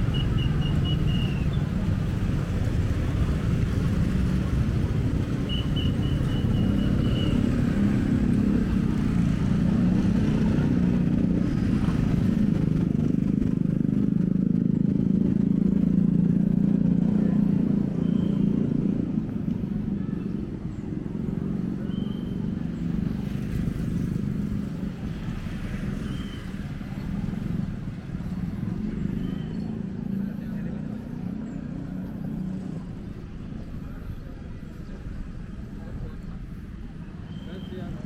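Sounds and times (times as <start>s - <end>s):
street traffic rumble: 0.0s - 38.0s.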